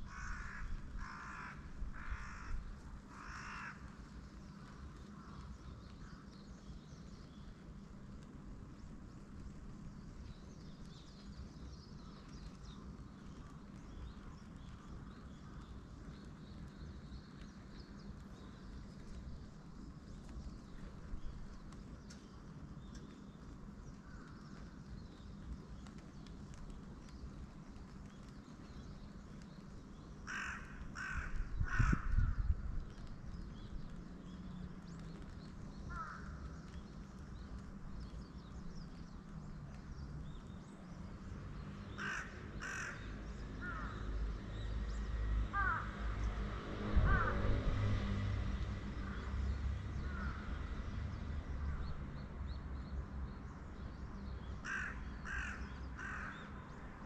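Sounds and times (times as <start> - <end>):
crows cawing: 0.1 - 4.0, 30.3 - 32.4, 35.9 - 36.5, 42.0 - 44.1, 45.5 - 45.9, 47.0 - 47.4, 50.0 - 50.4, 54.6 - 56.6
small birds chirping: 3.3 - 45.8.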